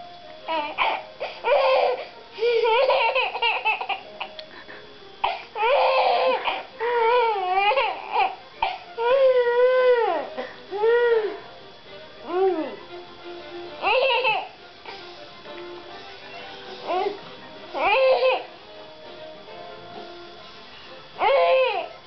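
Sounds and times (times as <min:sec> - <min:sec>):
baby laughing: 0:00.5 - 0:04.4, 0:13.8 - 0:14.5
baby squealing: 0:17.8 - 0:18.5, 0:21.2 - 0:21.9.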